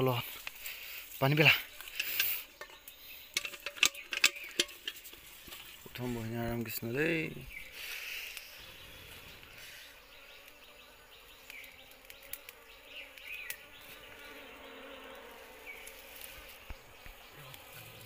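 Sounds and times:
bees buzzing: 0:00.0 - 0:18.0
small clicks: 0:11.4 - 0:13.6.

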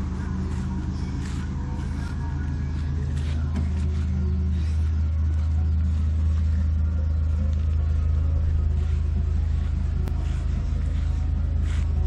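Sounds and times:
motor rumbling: 0:00.0 - 0:12.0.

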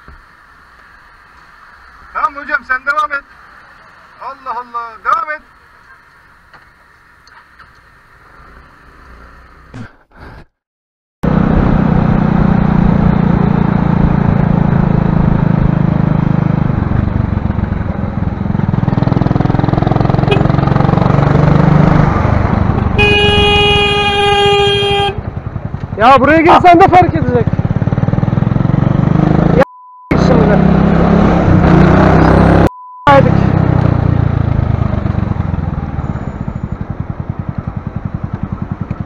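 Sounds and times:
motorcycle engine: 0:11.2 - 0:39.0
horn steady tone: 0:20.1 - 0:20.6, 0:22.7 - 0:25.3.

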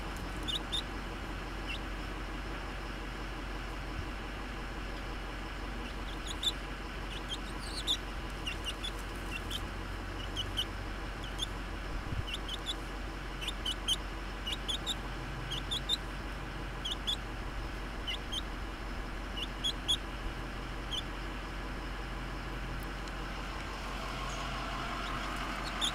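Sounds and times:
chick peeping softly: 0:00.0 - 0:02.1, 0:04.9 - 0:17.3, 0:18.0 - 0:18.6, 0:19.3 - 0:20.1, 0:20.8 - 0:21.2, 0:23.6 - 0:25.9
steady low hum: 0:00.0 - 0:25.9.

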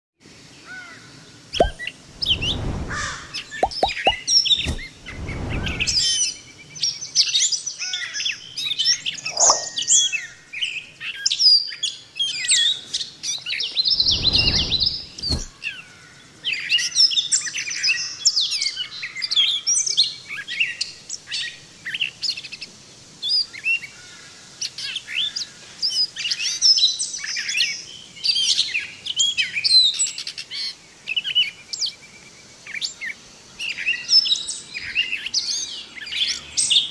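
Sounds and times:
low rumbles: 0:01.6 - 0:06.2
catbird singing: 0:01.6 - 0:06.4, 0:09.1 - 0:10.2.

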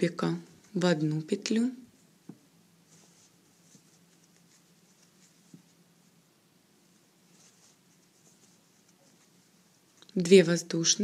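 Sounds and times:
faint steady hum: 0:00.0 - 0:11.0
yarn rustling through crochet hook: 0:02.8 - 0:10.6.

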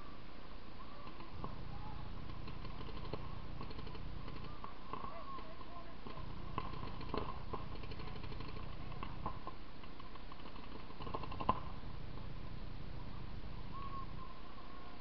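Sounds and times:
background noise: 0:00.0 - 0:15.0
paintball markers firing: 0:02.2 - 0:11.8.

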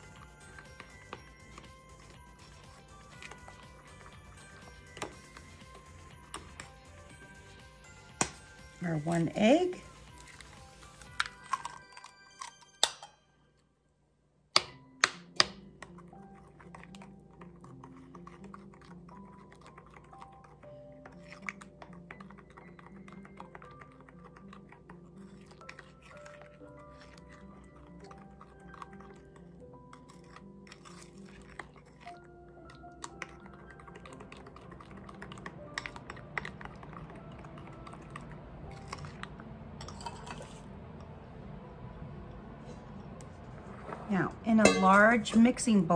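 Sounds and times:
soft background music: 0:00.0 - 0:13.8, 0:14.6 - 0:45.9
spoon scraping glass bowl: 0:15.9 - 0:36.6, 0:38.7 - 0:40.7, 0:44.6 - 0:45.7.

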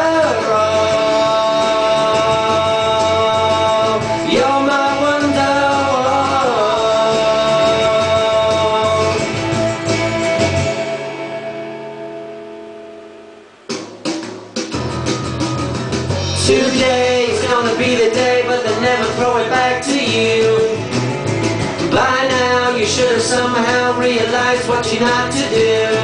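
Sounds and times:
man singing wordless notes: 0:00.0 - 0:11.1, 0:16.2 - 0:21.0, 0:21.8 - 0:26.0
backing music: 0:00.0 - 0:26.0.

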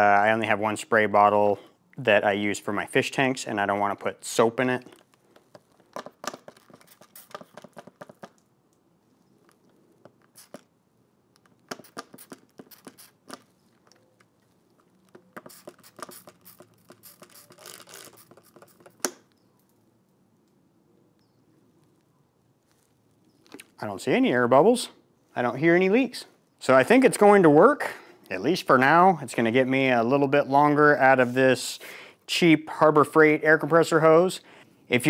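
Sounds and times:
spray bottle squirting: 0:06.0 - 0:08.4, 0:10.1 - 0:10.7, 0:11.6 - 0:13.6, 0:15.2 - 0:19.3.

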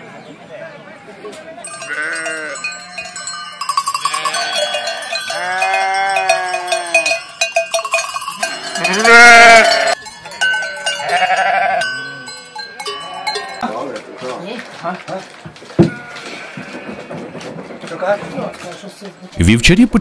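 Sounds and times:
sheep bells clanking: 0:01.6 - 0:14.5, 0:15.8 - 0:19.4
sheep bleating: 0:01.7 - 0:03.3, 0:03.9 - 0:07.2, 0:08.4 - 0:10.0, 0:10.6 - 0:12.0, 0:15.9 - 0:17.3.

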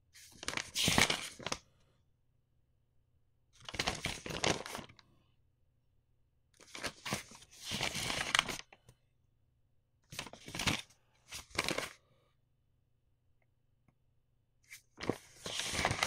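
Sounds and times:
paper rustling and crinkling: 0:00.2 - 0:01.6, 0:03.6 - 0:05.0, 0:06.6 - 0:08.7, 0:10.1 - 0:12.0, 0:14.7 - 0:16.0.

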